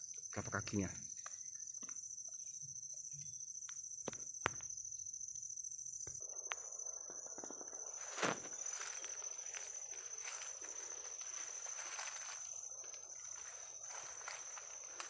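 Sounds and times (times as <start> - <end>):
forest insects droning: 0.0 - 15.0
footsteps in dry leaves: 8.0 - 15.0.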